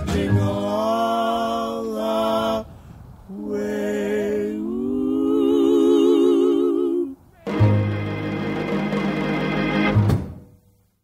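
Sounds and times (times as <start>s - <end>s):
person singing long notes with vibrato: 0.0s - 8.1s.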